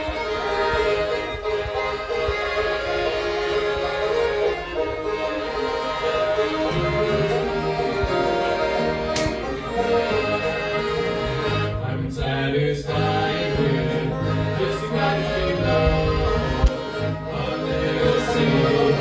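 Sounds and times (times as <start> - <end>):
string band playing: 0.0 - 19.0
people singing: 10.2 - 19.0.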